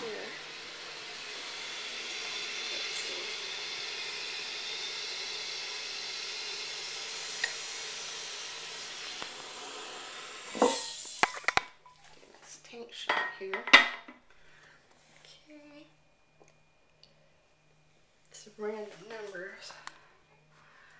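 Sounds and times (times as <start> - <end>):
steady hiss: 0.0 - 12.7.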